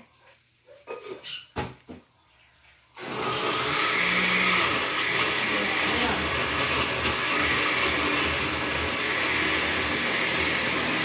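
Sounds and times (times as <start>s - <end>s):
electric blender running: 3.0s - 11.0s.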